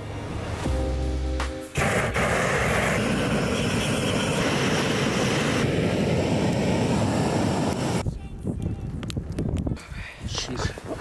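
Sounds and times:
music: 0.0 - 2.2
gas torch roaring: 1.7 - 8.0.

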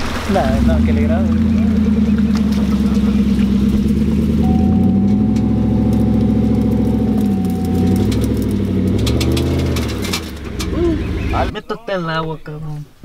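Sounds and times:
pickup truck engine revving: 0.0 - 11.6
thin steady whine: 4.2 - 11.6.

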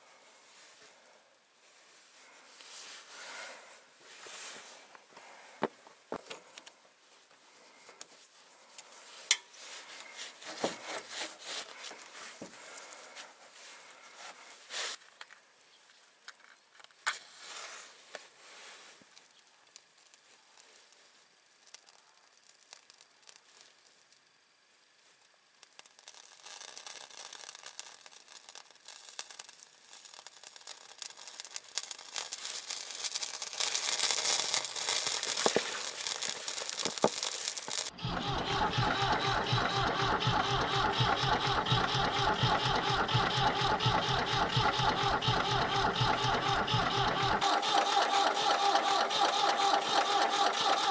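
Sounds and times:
flame hissing and crackling: 0.1 - 15.1, 17.2 - 50.9
tractor engine running: 37.8 - 50.9.

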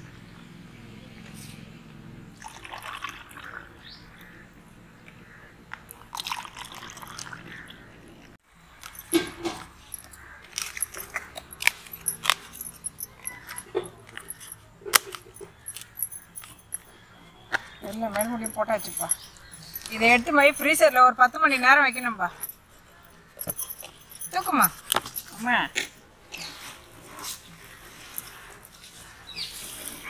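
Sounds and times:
juice pouring into cups: 2.4 - 3.8, 5.9 - 7.7.

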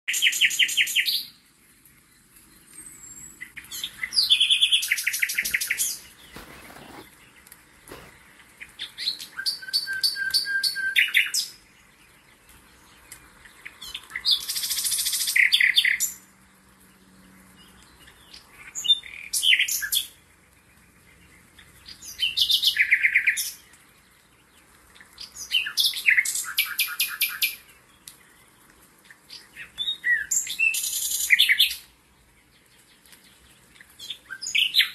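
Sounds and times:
songbird trilling: 2.8 - 7.1.

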